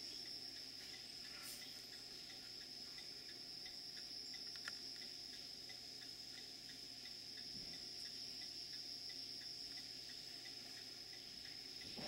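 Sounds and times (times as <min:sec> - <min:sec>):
insects trilling: 0:00.0 - 0:12.0
soft regular ticks: 0:00.0 - 0:12.0
sharp click: 0:04.0 - 0:05.1.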